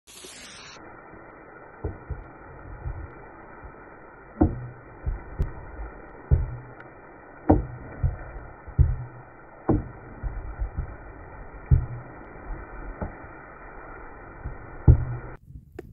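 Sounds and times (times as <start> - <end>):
steady low hiss: 0.1 - 15.9
wooden spoon knocking metal pot: 7.5 - 8.2.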